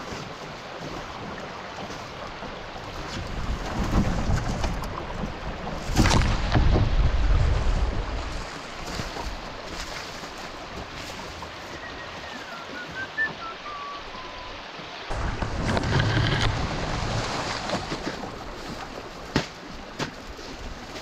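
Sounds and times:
river water rushing: 0.0 - 21.0
low rumbles: 15.1 - 19.0.

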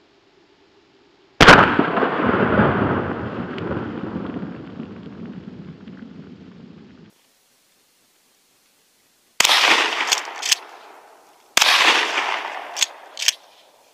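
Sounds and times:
shotgun blast with long echo: 1.4 - 5.2, 9.4 - 13.4.

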